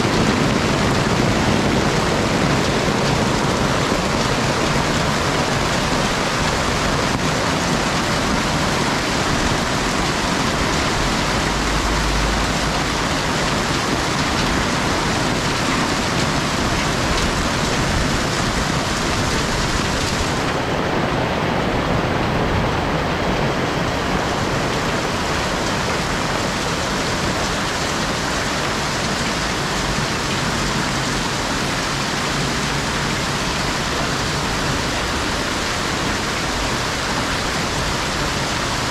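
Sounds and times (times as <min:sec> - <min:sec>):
hail and rain pelting rooftops: 0:00.0 - 0:21.2, 0:23.2 - 0:38.9.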